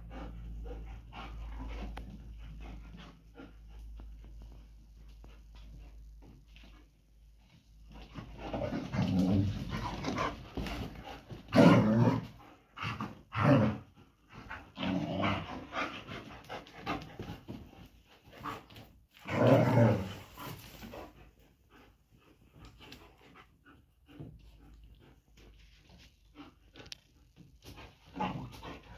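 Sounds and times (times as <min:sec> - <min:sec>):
dogs growling and snarling: 0:08.0 - 0:28.9.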